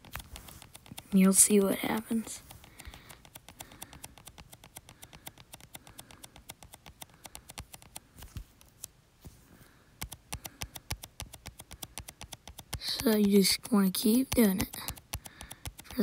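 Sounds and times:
fingertip taps on touchscreen: 0.1 - 1.0, 1.9 - 8.4, 10.0 - 13.4, 14.2 - 16.0.

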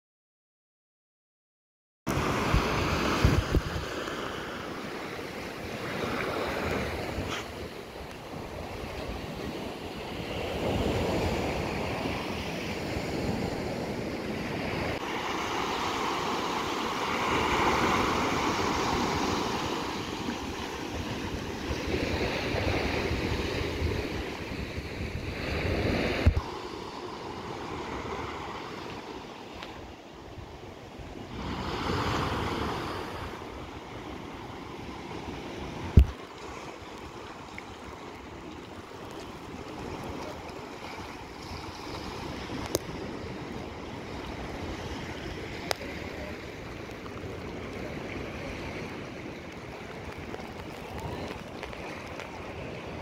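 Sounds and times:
sea surf on beach: 2.1 - 53.0
wind buffeting microphone: 2.2 - 4.0.

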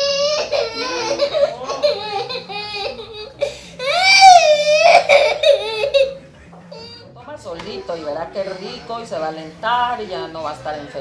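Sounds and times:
baby crying: 0.0 - 7.1.

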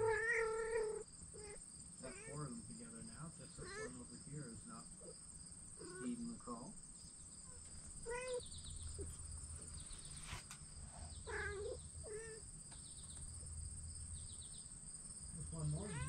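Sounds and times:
kittens meowing: 0.0 - 5.1, 5.8 - 6.7, 7.4 - 9.3, 10.0 - 13.4, 15.4 - 16.0
insects chirring: 0.0 - 16.0.

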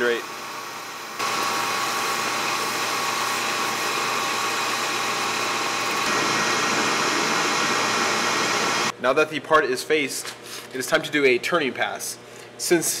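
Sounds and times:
metal lathe cutting: 0.2 - 8.9.

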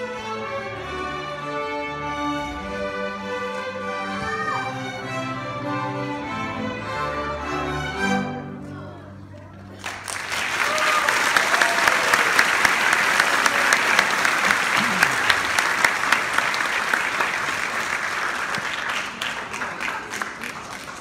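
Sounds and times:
audience clapping: 9.6 - 21.0.

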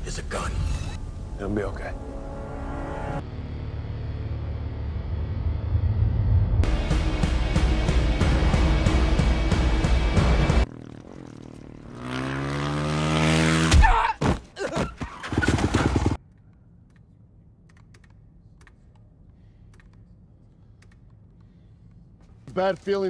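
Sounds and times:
low hum: 0.0 - 12.1.

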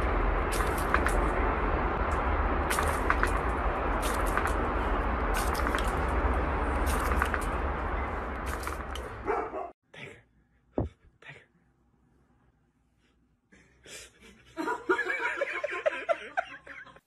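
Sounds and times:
water spraying from hose: 0.3 - 1.4, 2.6 - 7.6.

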